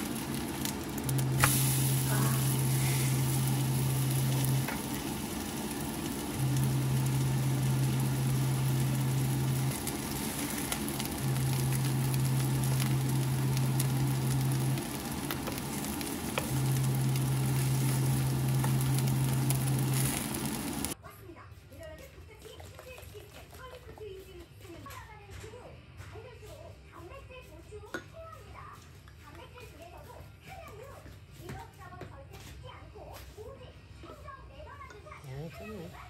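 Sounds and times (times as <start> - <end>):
food sizzling in a pan: 0.0 - 21.0
low hum: 0.0 - 21.0.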